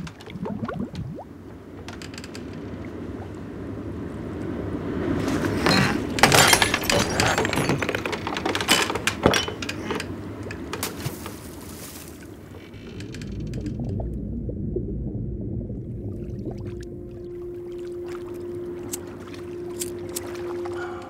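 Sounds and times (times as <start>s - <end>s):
sea and wind rumble: 0.0s - 21.0s
knocks and clinks in a rowboat: 5.2s - 13.0s, 18.0s - 21.0s.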